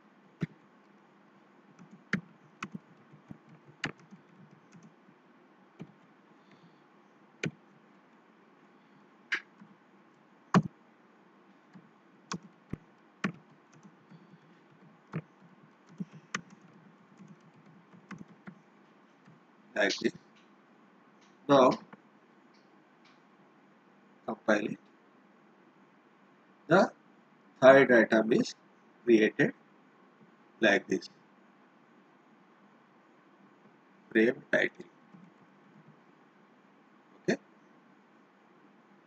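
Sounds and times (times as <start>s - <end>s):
faint steady hiss: 0.0s - 39.0s
keyboard keystroke clicks: 1.8s - 4.9s.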